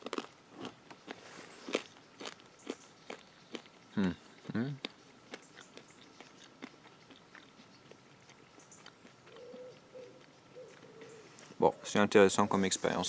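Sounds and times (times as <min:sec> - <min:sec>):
crunchy chewing: 0:00.0 - 0:11.6
dove cooing: 0:09.2 - 0:12.0.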